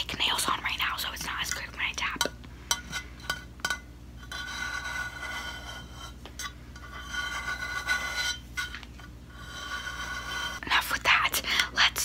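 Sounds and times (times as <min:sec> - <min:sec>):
fingers rasping on metal bottle: 0:06.8 - 0:10.6.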